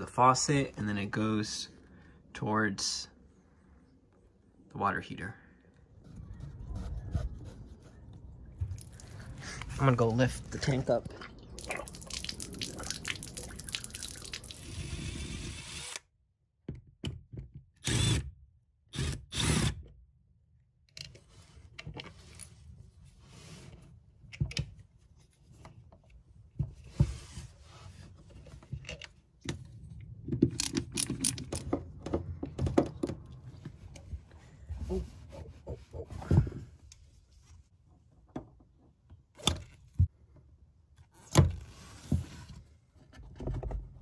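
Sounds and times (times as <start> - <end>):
water splashing onto concrete: 11.2 - 14.6.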